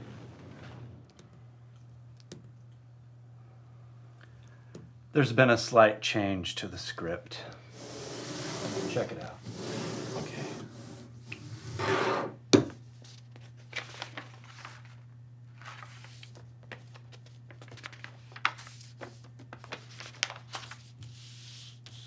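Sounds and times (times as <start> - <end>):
paper rustling and crinkling: 13.0 - 22.0.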